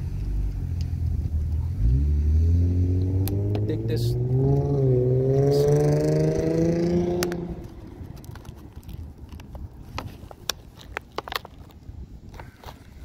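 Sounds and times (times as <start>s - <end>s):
passing vehicle engine: 0.0s - 8.2s.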